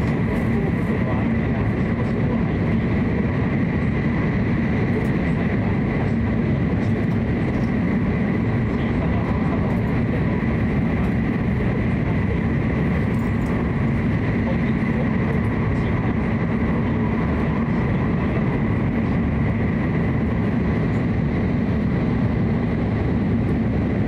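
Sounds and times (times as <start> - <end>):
train cabin low rumble and hiss: 0.0 - 24.0.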